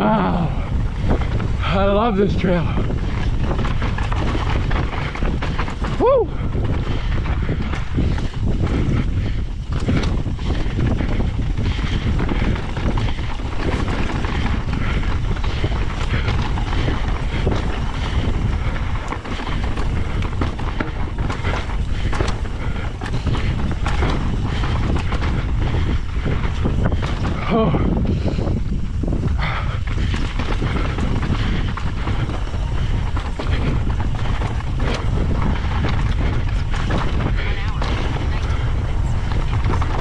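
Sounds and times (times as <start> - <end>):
bike rattling: 0.0 - 40.0
tyres crunching over gravel: 0.0 - 40.0
wind rushing on microphone: 0.0 - 40.0.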